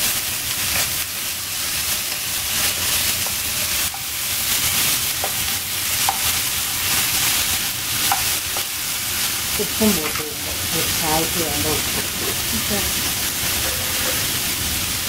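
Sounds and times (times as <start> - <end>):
vegetables sizzling in oil: 0.0 - 15.0
spatula scraping and tapping pan: 2.1 - 4.2, 5.2 - 8.7, 13.5 - 14.4.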